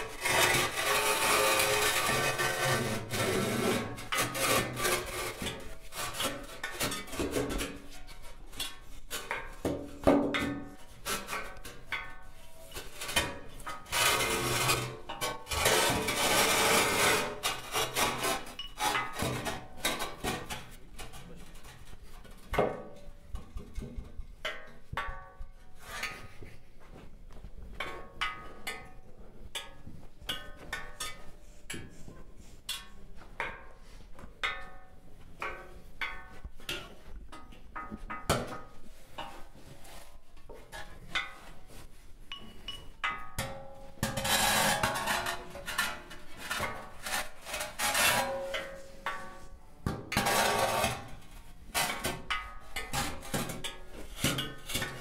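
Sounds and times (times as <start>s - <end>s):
loud rasping scraping: 0.0s - 5.4s.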